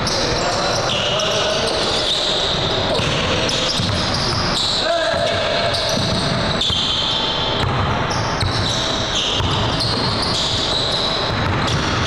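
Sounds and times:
basketball bouncing on hardwood: 9.4 - 10.7.

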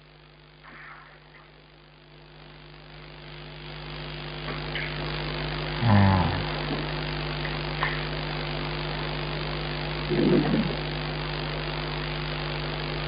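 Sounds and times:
electrical mains hum with hiss: 0.0 - 13.0
vocal murmur: 5.8 - 7.0, 10.1 - 10.9.

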